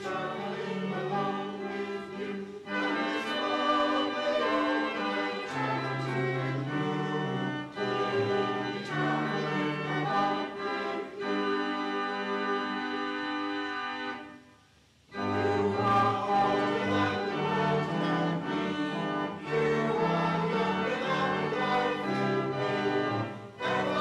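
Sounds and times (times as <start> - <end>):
church choir singing: 0.0 - 14.4, 15.1 - 24.0.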